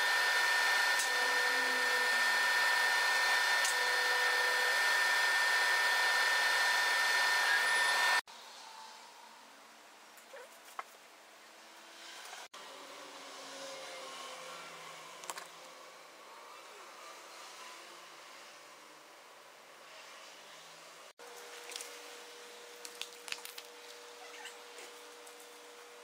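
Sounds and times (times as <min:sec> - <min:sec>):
laser cutter fans whirring: 0:00.0 - 0:08.2.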